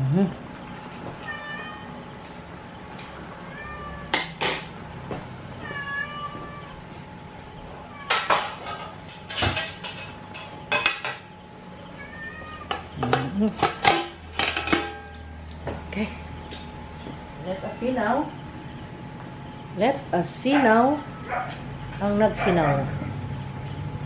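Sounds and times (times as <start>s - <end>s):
cat meowing: 1.2s - 2.0s, 3.4s - 4.2s, 5.6s - 6.8s, 12.0s - 12.8s
metal kitchenware clattering: 8.1s - 11.2s, 13.0s - 15.3s.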